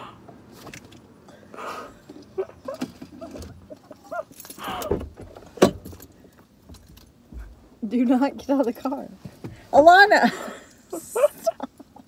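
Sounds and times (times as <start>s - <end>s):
woman giggling: 10.2s - 12.0s.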